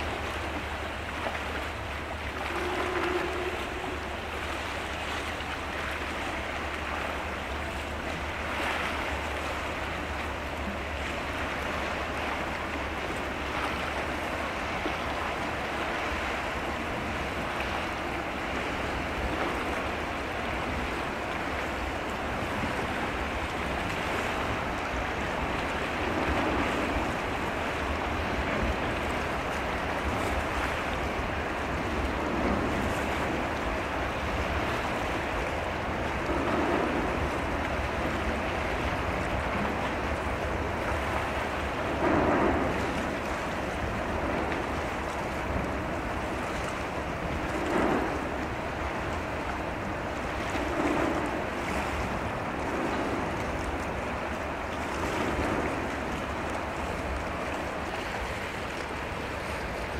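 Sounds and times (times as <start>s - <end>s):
sea water rushing: 0.0s - 59.9s
low rumble: 1.3s - 6.1s, 31.6s - 57.6s.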